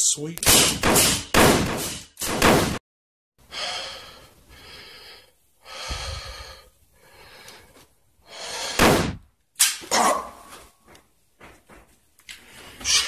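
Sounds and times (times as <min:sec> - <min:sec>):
man gasping breaths: 0:03.4 - 0:08.9.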